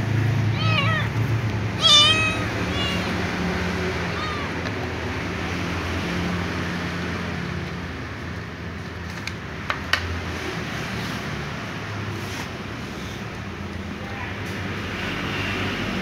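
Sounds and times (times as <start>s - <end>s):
kitten meowing: 0.4s - 4.9s.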